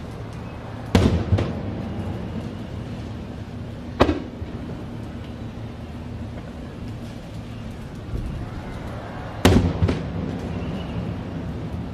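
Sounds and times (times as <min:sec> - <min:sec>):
low background rumble: 0:00.0 - 0:11.9
firework bangs with echo: 0:00.9 - 0:02.6, 0:03.9 - 0:04.8, 0:09.4 - 0:11.7.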